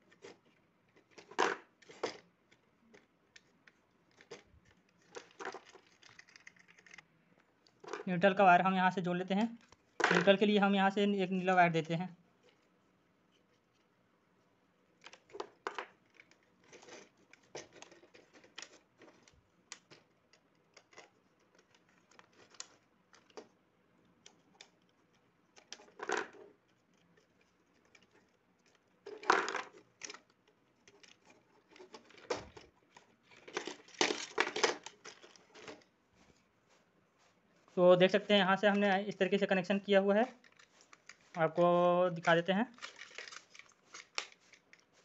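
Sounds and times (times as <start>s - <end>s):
hands twisting wires: 0.0s - 8.1s, 14.9s - 37.4s, 40.2s - 45.0s.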